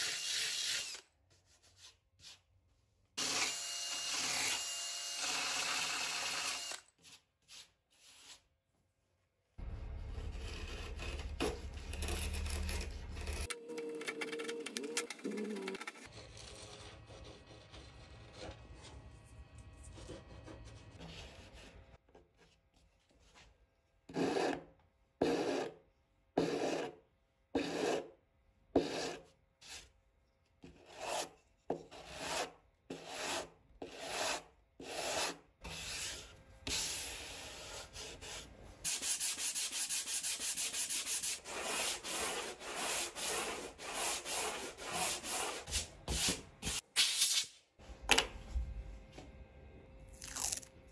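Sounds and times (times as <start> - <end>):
sandpaper sanding strokes: 33.9 - 46.8.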